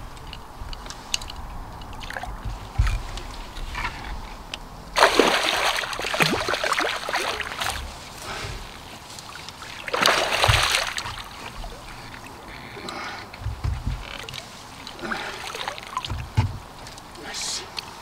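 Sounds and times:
water splashing around a net: 1.9 - 4.2, 4.9 - 12.8, 13.4 - 17.1.

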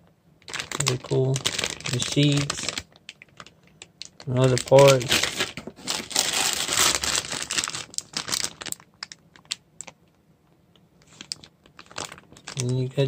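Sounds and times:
plastic bags crinkling: 0.4 - 10.0, 11.0 - 13.0.

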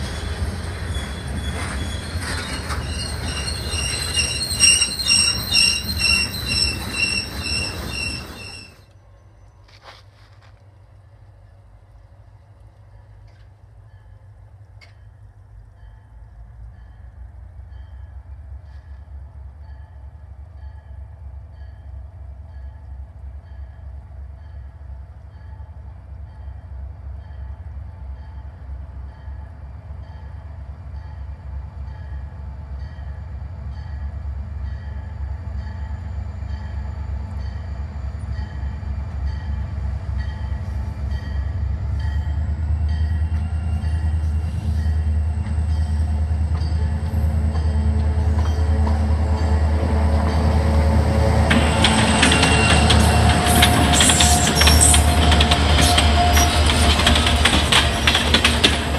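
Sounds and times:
crossing warning bell dinging: 0.0 - 9.6, 19.6 - 58.9
diesel locomotive engine rumble: 0.0 - 58.9.

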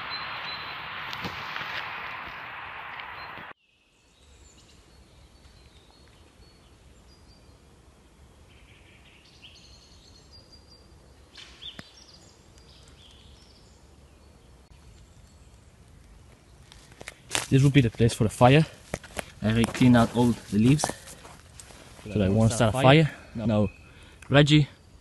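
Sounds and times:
bird calls and chirps: 0.0 - 1.0, 8.4 - 16.7, 22.0 - 25.0
low steady background noise: 0.0 - 25.0.

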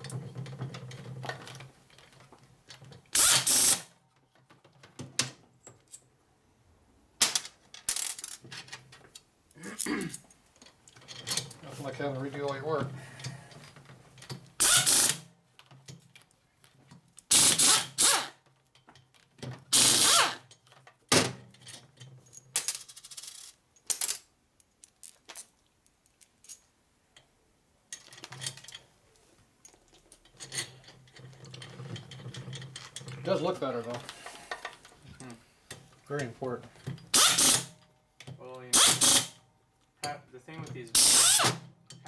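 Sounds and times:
air ratchet bursts: 3.2 - 3.9, 14.6 - 15.2, 17.3 - 18.4, 19.7 - 20.5, 37.1 - 37.7, 38.7 - 39.4, 41.0 - 41.6.

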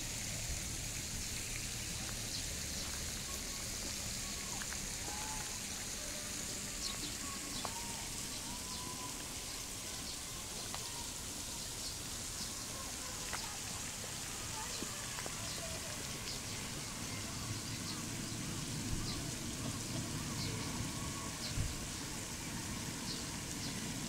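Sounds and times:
water drops on pond surface: 12.7 - 16.6.

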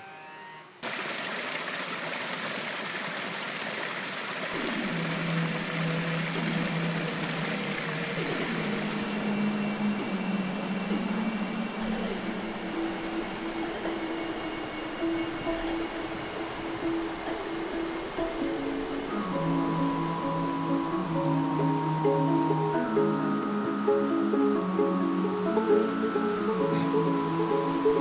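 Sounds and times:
music with long held notes: 4.6 - 28.0.

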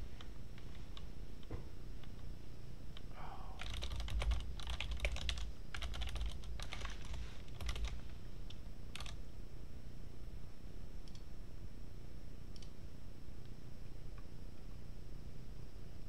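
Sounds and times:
typing on computer keyboard: 3.6 - 8.0, 9.0 - 9.2.

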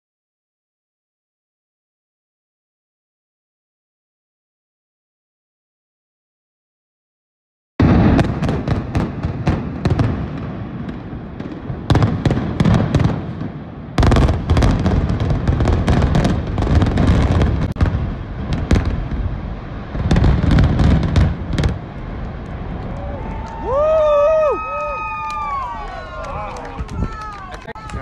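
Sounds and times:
heavy low rumble of collapse: 14.2 - 28.0.

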